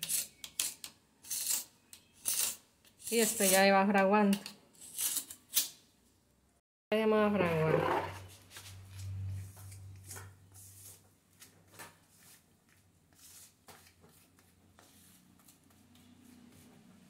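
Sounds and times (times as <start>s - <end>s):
grout rubbing on tiles: 0.0s - 3.7s.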